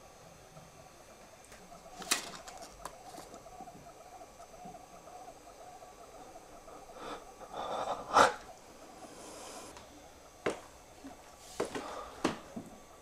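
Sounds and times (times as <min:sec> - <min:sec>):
paper rustling and crinkling: 0:02.0 - 0:03.4.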